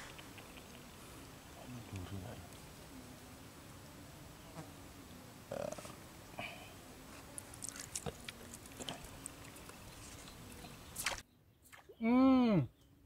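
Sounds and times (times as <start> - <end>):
small ticks and chirps: 0.0 - 2.8, 7.1 - 11.6.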